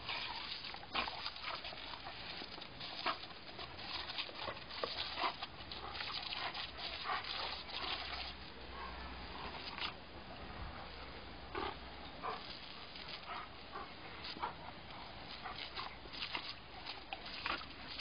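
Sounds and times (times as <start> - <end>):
dog snapping at water: 0.1 - 8.3, 15.3 - 18.0.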